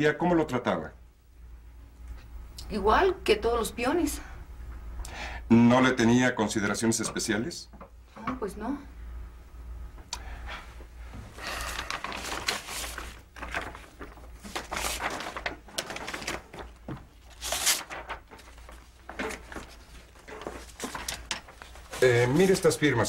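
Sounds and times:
low steady hum: 0.0s - 23.0s
paper rustling and shuffling: 11.2s - 23.0s.

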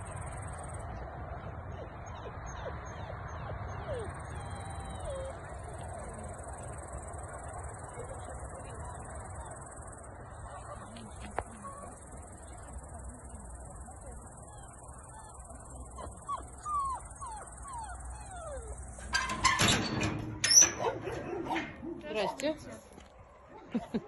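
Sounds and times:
puppy whimpering: 1.8s - 6.4s, 14.3s - 19.3s.

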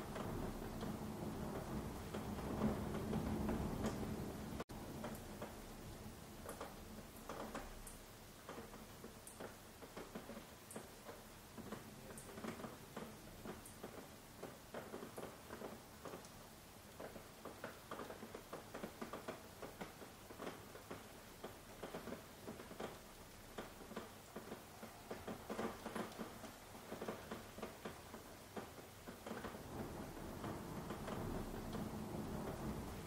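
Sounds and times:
rain drops pattering: 0.0s - 33.0s.

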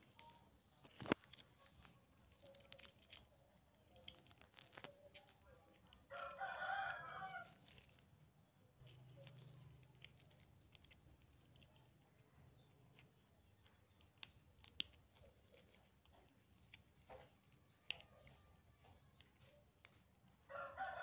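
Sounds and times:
rooster crowing: 6.1s - 7.6s, 20.5s - 21.0s.

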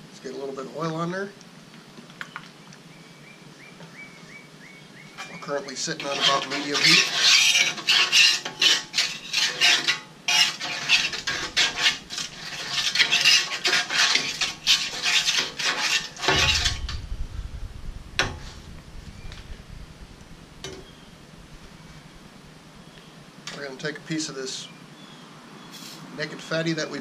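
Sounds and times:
metal spatula scraping griddle: 5.1s - 17.0s.

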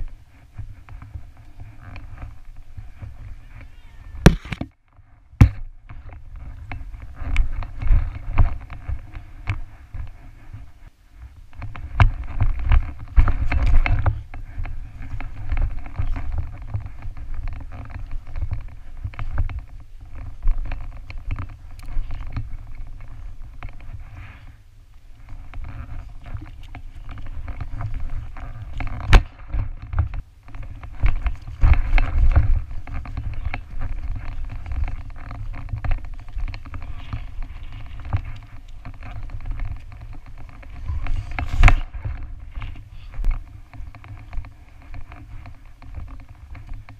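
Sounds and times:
camera housing rumbling and rubbing: 0.0s - 24.6s, 25.2s - 46.9s
sharp knocks: 4.3s - 4.7s.

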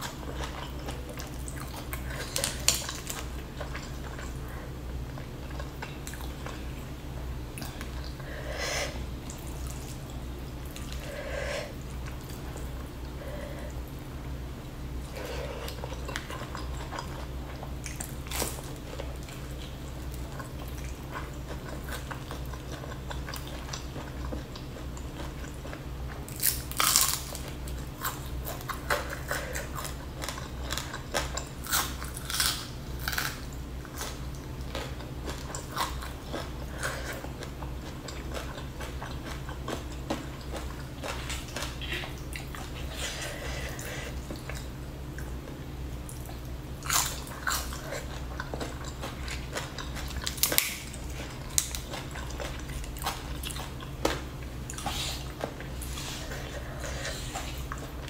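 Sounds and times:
steady low hum: 0.0s - 58.0s
wet chewing: 15.1s - 45.4s, 46.0s - 58.0s.

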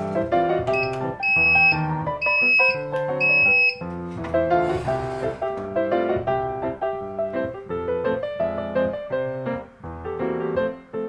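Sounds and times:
piano background music: 0.0s - 11.0s
high-pitched toaster oven beeps: 0.8s - 3.8s.

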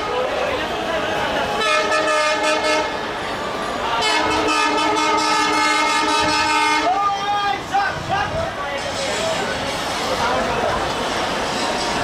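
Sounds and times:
locomotive horn blasts: 1.6s - 3.0s, 4.0s - 7.0s.

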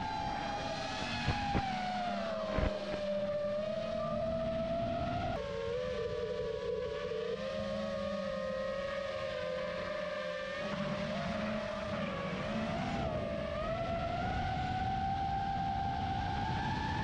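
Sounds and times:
drone motors whining: 0.0s - 5.4s.

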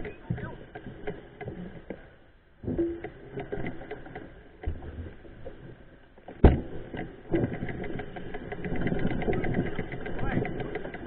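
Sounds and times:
mountain bike rattling on dirt trail: 2.8s - 4.6s, 6.3s - 11.0s.

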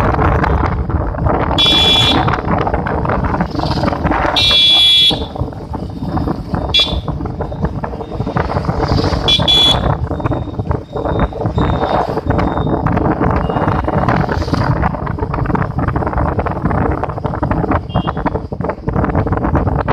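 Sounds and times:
motorcycle road noise: 0.0s - 19.9s
wind buffeting microphone: 0.0s - 19.9s
electric horn honks: 9.3s - 9.9s.

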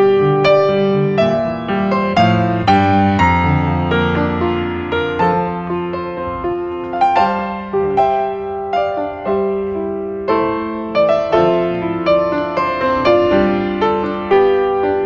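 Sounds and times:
slow piano music: 0.0s - 15.0s.

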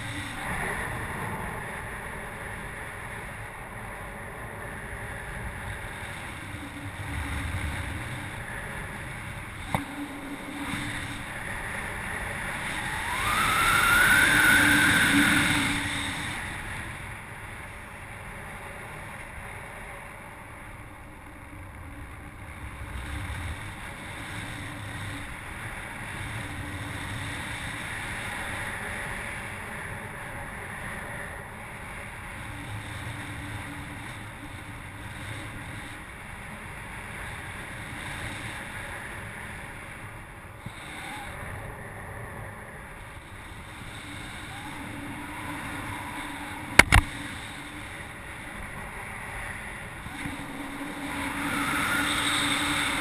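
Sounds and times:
wind rushing over microphone: 0.0s - 53.0s
rising whistle: 12.7s - 16.3s, 50.9s - 53.0s
sharp click: 46.8s - 47.1s.

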